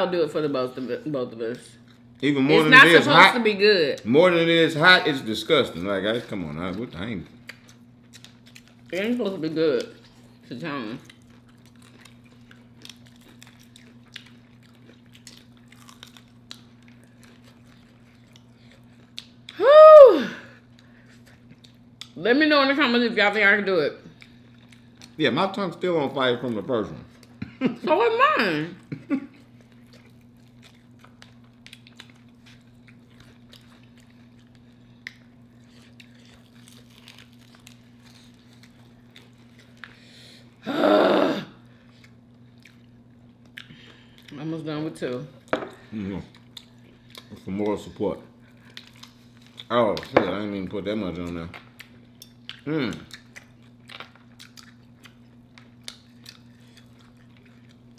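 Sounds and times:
faint steady hum: 0.0 - 57.9
chewing fried chicken: 1.4 - 3.2, 3.8 - 22.2, 24.0 - 27.7, 28.8 - 40.6, 41.6 - 57.9.

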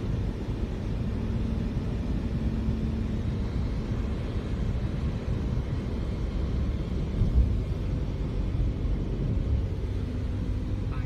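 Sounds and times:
car cabin engine and road rumble: 0.0 - 11.0.

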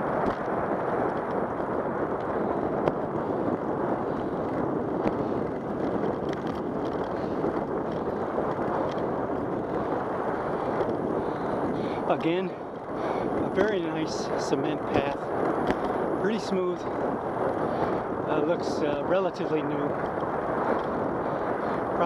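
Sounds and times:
wind noise on microphone: 0.0 - 22.0.

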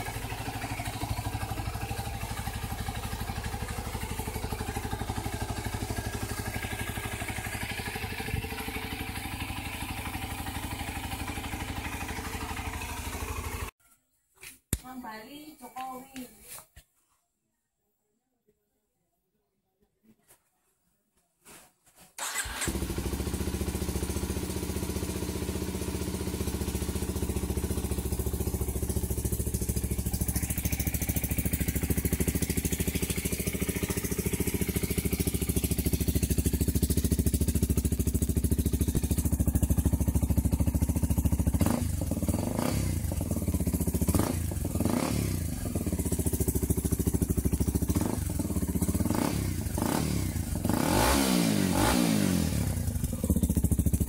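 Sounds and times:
motorcycle engine idling: 0.0 - 13.7, 22.2 - 54.0
motorcycle throttle blips: 52.9 - 54.0.

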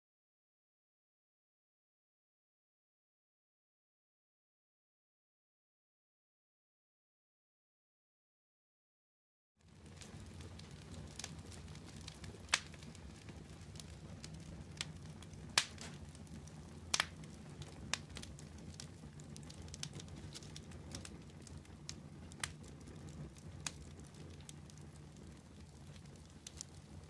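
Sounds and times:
fire crackling and popping: 9.6 - 27.0.

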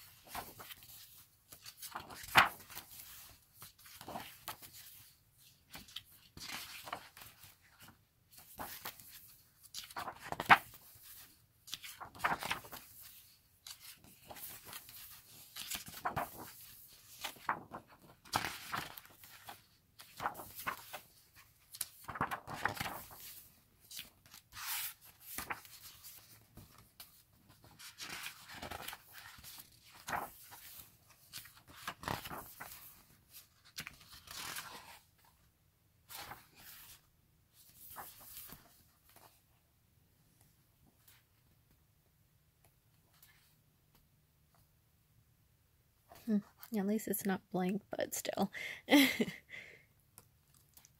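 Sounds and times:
pages turning rustle: 0.0 - 35.4, 36.0 - 39.4, 50.2 - 50.9.

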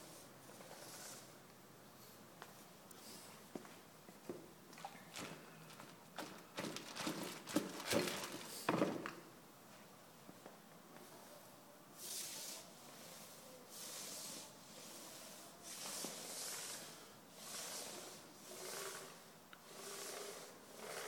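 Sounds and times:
paint roller swishing: 0.0 - 1.4, 5.2 - 8.7, 12.0 - 21.0.

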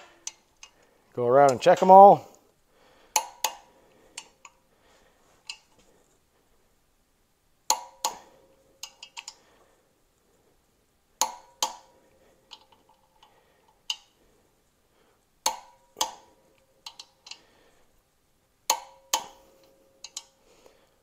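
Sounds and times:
torque wrench clicking: 3.2 - 4.6, 11.2 - 11.9, 15.4 - 17.4, 18.7 - 20.4.

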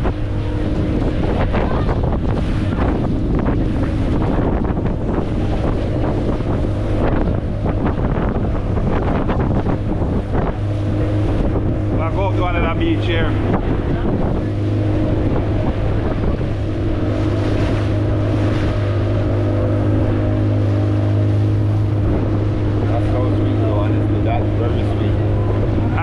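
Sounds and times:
boat engine humming: 0.0 - 26.0
wind noise on microphone: 0.0 - 26.0.

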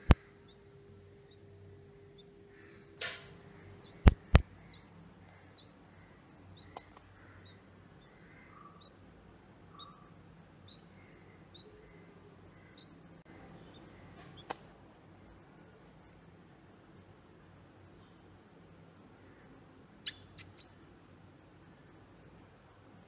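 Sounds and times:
sharp loud clicks: 3.0 - 3.4, 4.0 - 4.5.

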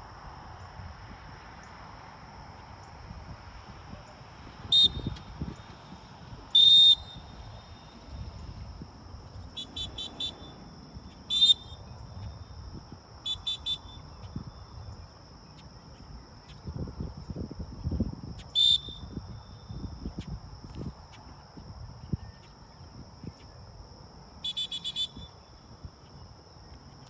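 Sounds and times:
dog whistle blasts and toots: 4.7 - 5.2, 6.6 - 7.4, 11.3 - 11.8, 13.2 - 14.0, 18.5 - 19.2, 24.4 - 25.3.

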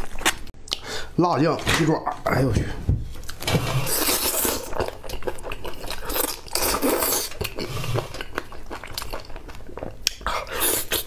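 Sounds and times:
man chewing crunchy food: 0.0 - 0.8, 3.2 - 11.0.

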